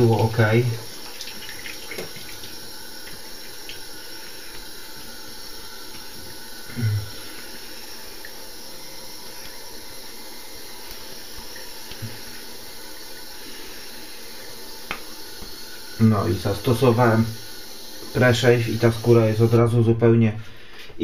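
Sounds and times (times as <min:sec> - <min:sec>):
tap running into sink: 0:01.0 - 0:03.8.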